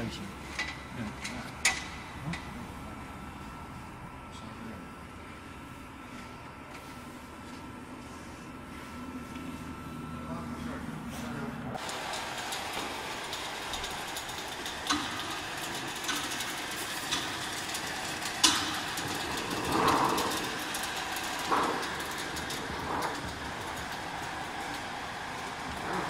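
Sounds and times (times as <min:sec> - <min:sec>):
slitting machine running: 0:00.0 - 0:05.4, 0:08.7 - 0:26.0
sharp knocks and clicks: 0:12.7 - 0:24.0.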